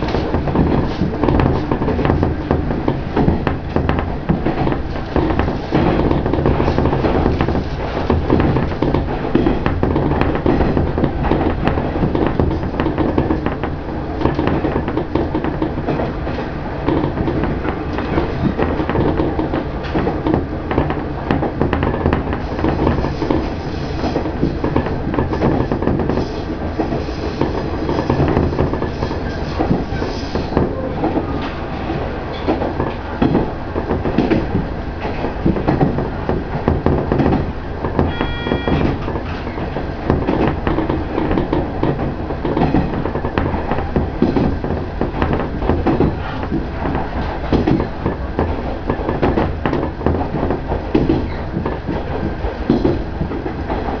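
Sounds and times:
wheels clicking over rail joints: 0.0 - 54.0
high wheel squeal: 38.1 - 38.9.

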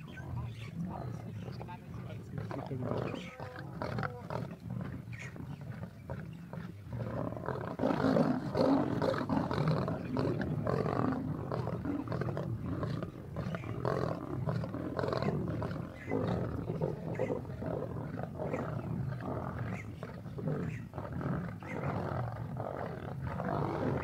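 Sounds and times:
lionesses growling and snarling: 0.0 - 24.0.

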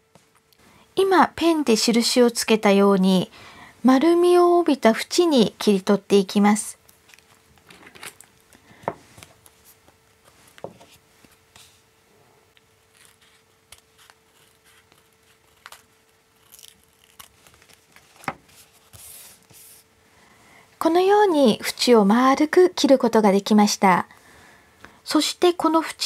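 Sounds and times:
paper handling: 12.6 - 19.8
scissors snipping paper: 12.9 - 18.2.

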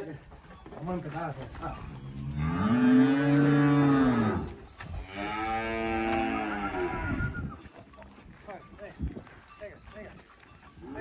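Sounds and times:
cattle mooing: 2.0 - 7.3.

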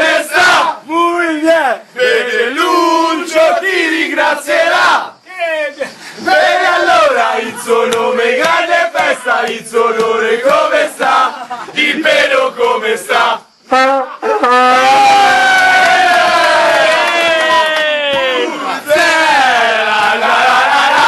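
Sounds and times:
men chanting: 0.0 - 13.5, 18.0 - 21.0
men shouting: 14.3 - 21.0.

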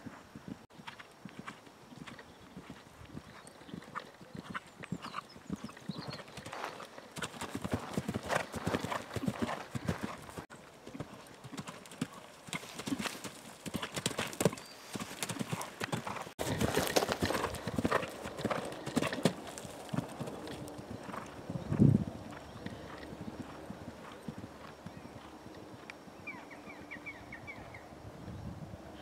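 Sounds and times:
horse hoofbeats on turf: 4.5 - 25.4.

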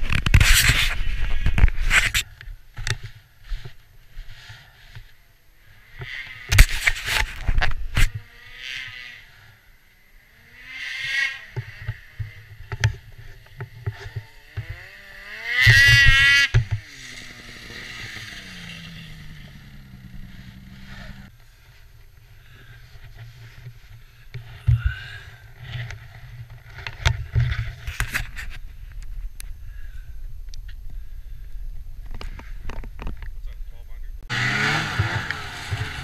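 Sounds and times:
snowmobile engine revving: 8.0 - 21.6, 34.2 - 36.0.

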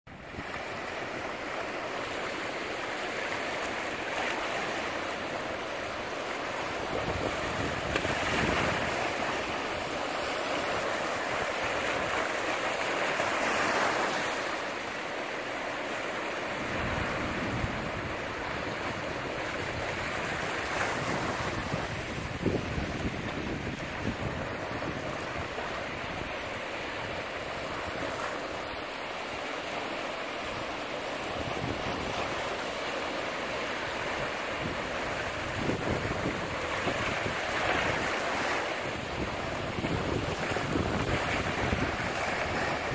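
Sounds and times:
waves breaking on rocky shore: 0.1 - 42.9
wind rumble on microphone: 6.6 - 9.9, 16.6 - 28.3, 31.2 - 32.6, 34.2 - 42.9.

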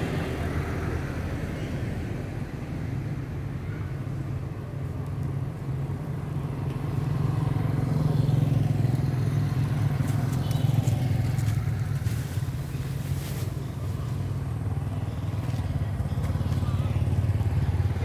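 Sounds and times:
vehicle engine rumble: 0.0 - 18.0.

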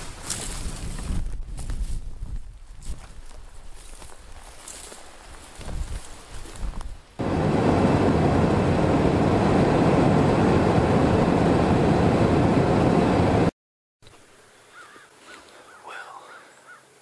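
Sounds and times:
footsteps through dry grass: 0.0 - 7.1
car road and engine noise: 7.2 - 13.5.

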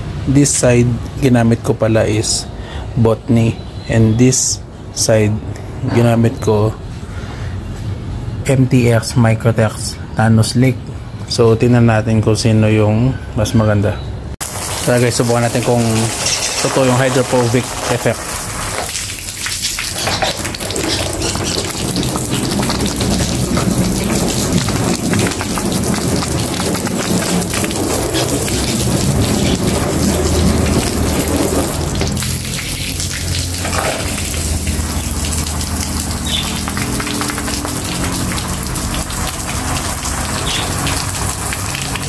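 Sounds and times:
hose water splashing on car: 14.4 - 42.0.

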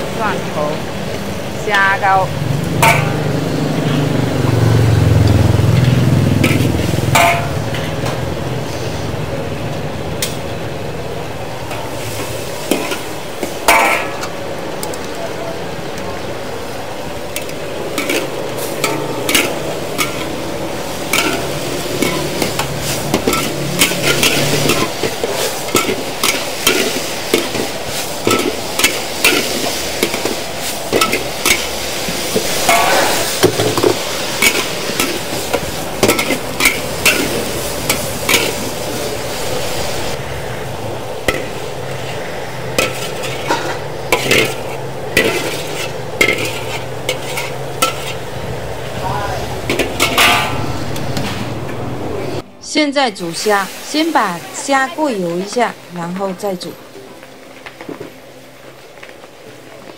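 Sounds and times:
food sizzling in hot oil: 0.0 - 51.5, 52.3 - 59.9
metal spatula scraping a wok: 2.8 - 4.1, 5.2 - 9.1, 17.4 - 40.2, 41.2 - 48.5, 49.6 - 51.5.

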